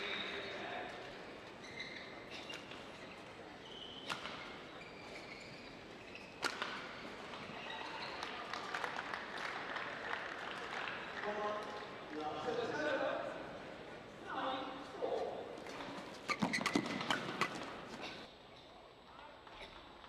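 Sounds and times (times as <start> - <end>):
crowd noise in a hall: 0.0 - 20.0
shoe squeaks on court: 1.5 - 8.3, 15.7 - 18.2
racket hitting shuttlecock: 6.4 - 7.0.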